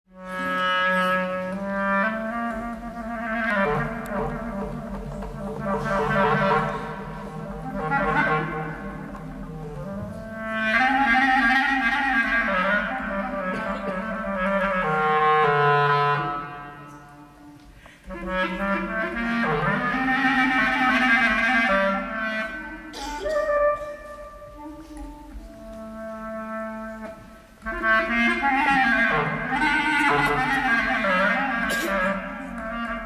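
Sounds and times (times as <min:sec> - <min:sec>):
clarinet melody: 0:00.1 - 0:33.0.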